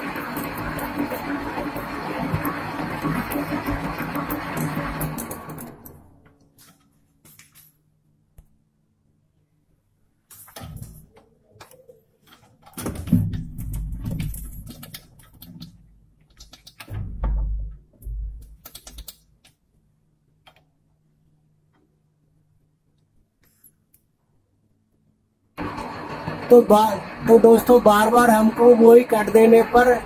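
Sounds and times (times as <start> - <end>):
lathe humming: 0.0 - 6.1, 25.6 - 30.0
heavy thumps: 16.9 - 18.6.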